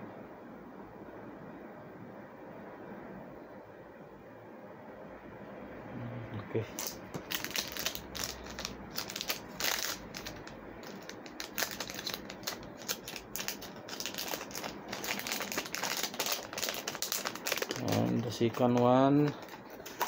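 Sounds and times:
plastic packaging crinkling: 6.7 - 20.0.

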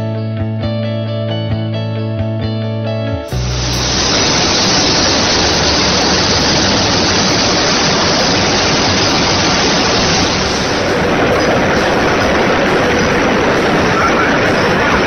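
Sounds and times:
coil processing line rushing: 3.3 - 15.0.

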